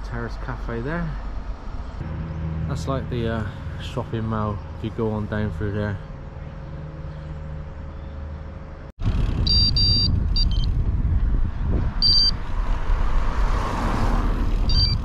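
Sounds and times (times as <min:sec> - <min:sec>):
wind and road noise: 0:00.0 - 0:15.0
short high electronic beeps: 0:09.5 - 0:10.7, 0:12.0 - 0:12.4, 0:14.7 - 0:15.0.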